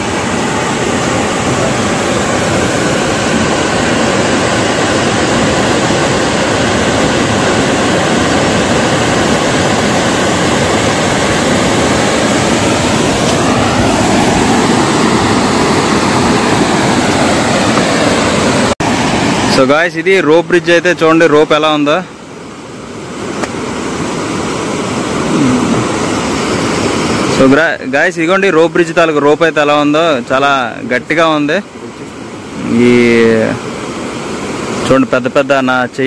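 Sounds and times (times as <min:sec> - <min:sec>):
river rapids roaring over rocks: 0:00.0 - 0:19.9, 0:22.6 - 0:27.4.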